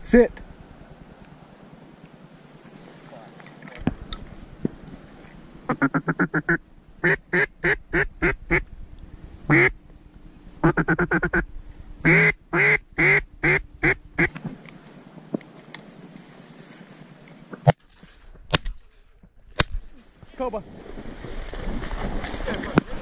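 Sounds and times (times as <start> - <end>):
duck call quacks: 5.7 - 8.6, 9.5 - 9.8, 10.6 - 11.4, 12.0 - 14.3.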